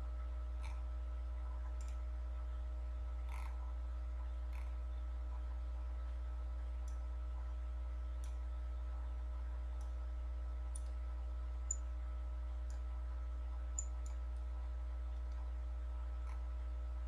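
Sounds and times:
steady low hum: 0.0 - 17.0
computer mouse clicking: 1.7 - 2.0, 10.7 - 11.0, 13.7 - 14.5.

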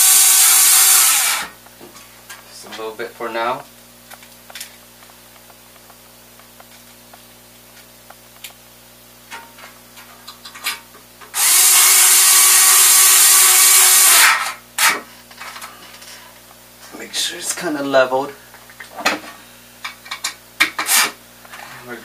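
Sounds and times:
electric screwdriver spinning: 11.4 - 14.5.

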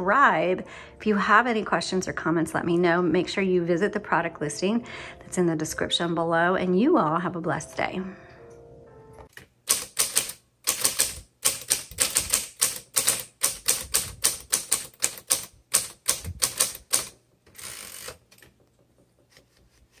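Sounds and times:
manual typewriter typing: 9.3 - 18.6
typewriter rasp: 9.7 - 18.4.

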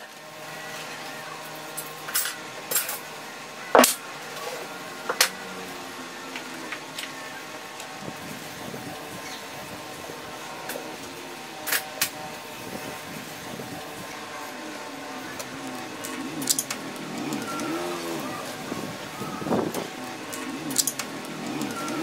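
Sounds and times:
vehicle engine rising and falling: 0.0 - 22.0
sharp clicks: 15.4 - 18.3, 19.6 - 22.0.

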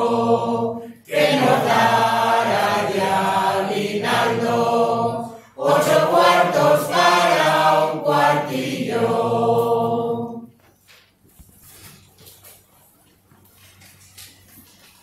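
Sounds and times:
mixed choir singing unaccompanied: 0.0 - 10.5.

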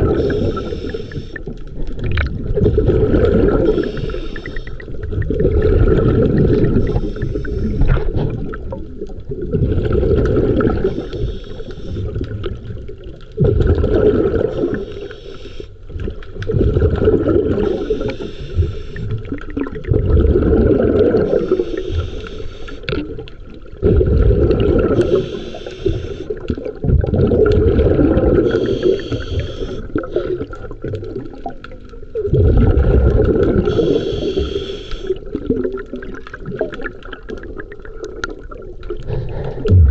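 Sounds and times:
exhaled bubbles rumbling: 0.0 - 39.9
regulator inhale hiss: 0.1 - 1.5, 3.7 - 4.8, 6.6 - 8.0, 10.8 - 12.2, 14.5 - 15.8, 17.6 - 19.2, 21.3 - 23.0, 24.9 - 26.4, 28.4 - 30.4, 33.6 - 35.2, 39.1 - 39.9.

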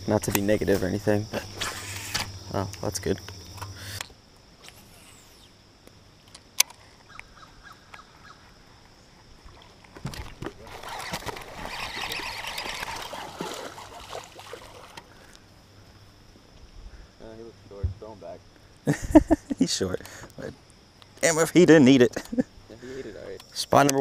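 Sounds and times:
fish splashing and thrashing in water: 9.4 - 15.3.

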